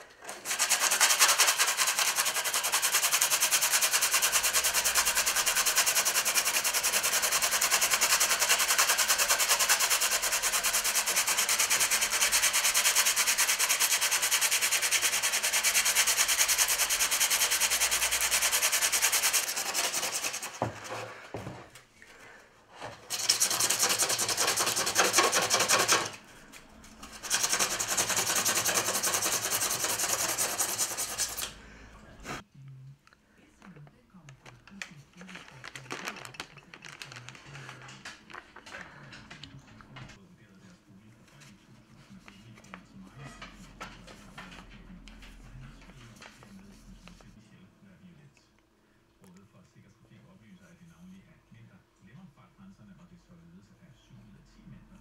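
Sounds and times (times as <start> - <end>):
sandpaper rubbing: 0.3 - 21.0, 23.0 - 26.2, 27.0 - 31.5.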